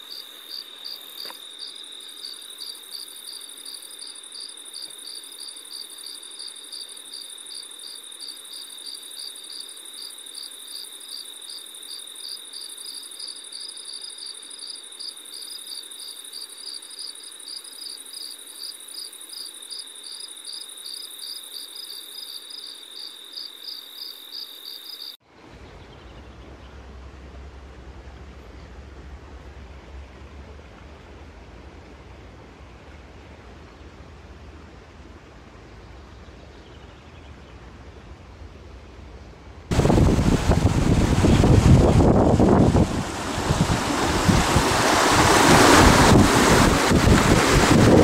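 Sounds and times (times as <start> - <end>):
high-pitched insect buzz: 0.0 - 25.2
insects chirping: 0.0 - 25.2
rushing noise with low rumble: 37.4 - 48.0.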